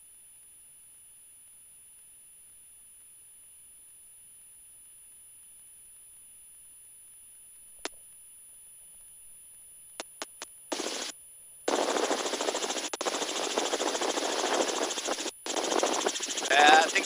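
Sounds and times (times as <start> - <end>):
helicopter rotor and engine noise: 10.7 - 11.1, 11.7 - 17.0
intercom hiss: 16.4 - 17.0.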